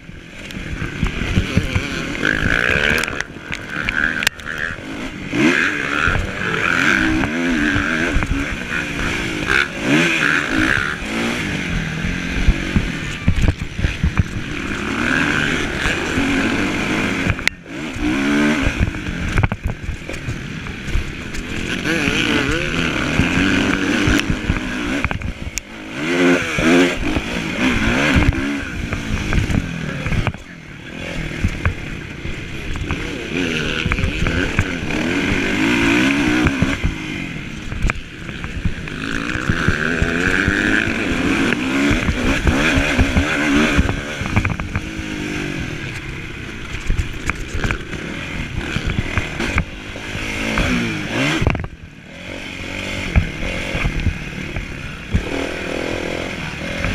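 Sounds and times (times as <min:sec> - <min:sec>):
motocross bike engine revving: 0:00.0 - 0:56.9
wind rushing over microphone: 0:00.0 - 0:56.9.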